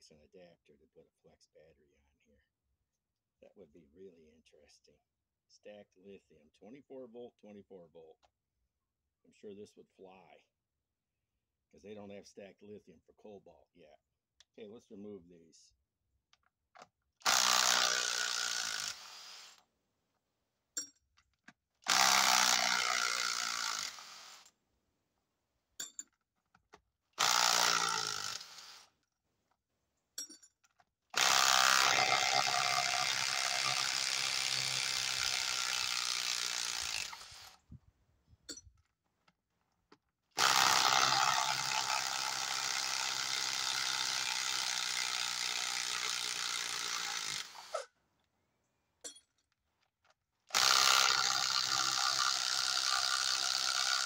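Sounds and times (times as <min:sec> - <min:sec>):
impact driver hammering: 0:31.2 - 0:37.4.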